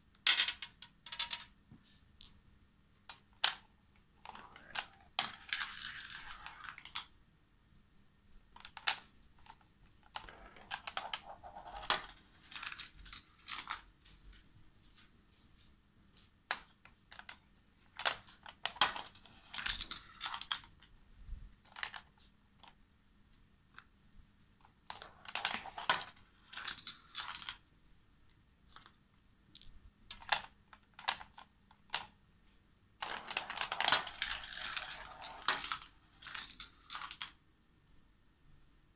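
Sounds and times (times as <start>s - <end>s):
marbles clattering through plastic run: 4.3s - 7.1s, 24.9s - 27.6s, 33.0s - 37.3s.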